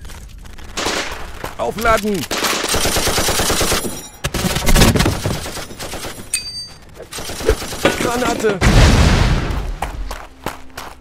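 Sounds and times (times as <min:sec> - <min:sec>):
machine-gun fire bursts: 0:02.3 - 0:03.8.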